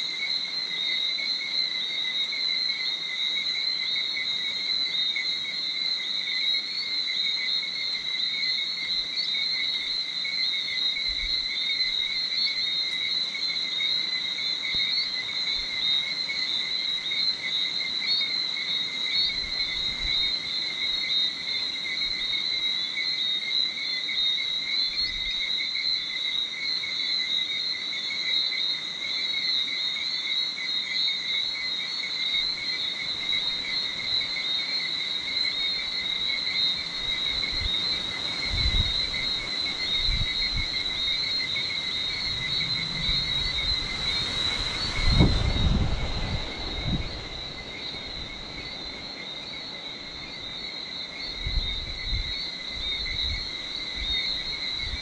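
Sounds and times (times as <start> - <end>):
insects calling at night: 0.0 - 55.0.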